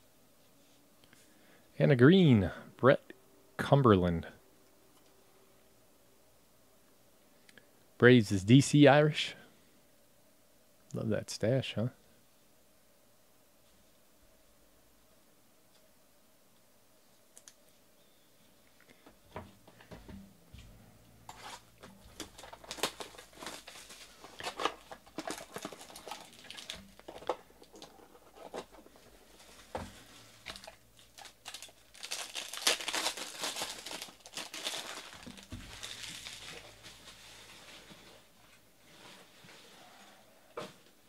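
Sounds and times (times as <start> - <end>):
plastic crinkling and rustling: 21.3 - 39.4.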